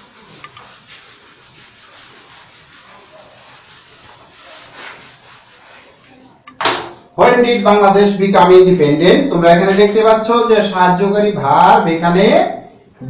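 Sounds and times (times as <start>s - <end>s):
cloth wiping a whiteboard: 0.0s - 6.4s.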